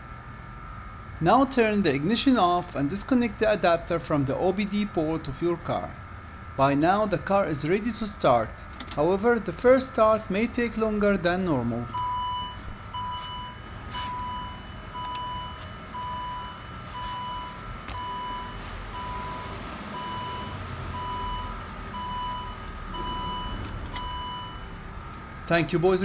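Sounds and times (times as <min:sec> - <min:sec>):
car warning chime beeping: 0:11.9 - 0:25.8.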